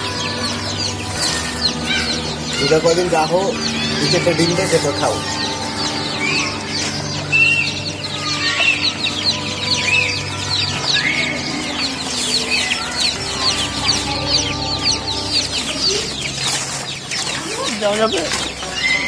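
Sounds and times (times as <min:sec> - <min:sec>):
chicks peeping: 0:00.0 - 0:19.0.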